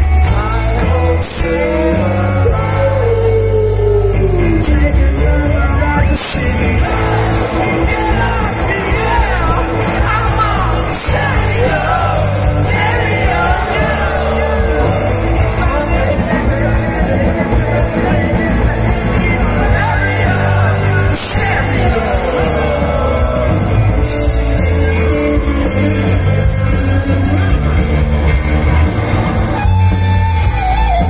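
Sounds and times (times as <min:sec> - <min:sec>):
live rock band playing: 0:00.0 - 0:31.0
man singing loudly: 0:00.3 - 0:24.0.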